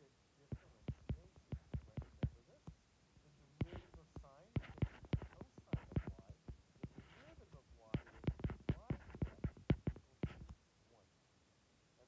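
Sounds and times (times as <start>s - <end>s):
faint muffled voice: 0.0s - 11.1s
stylus tapping on glass screen: 0.5s - 2.8s, 3.6s - 10.6s.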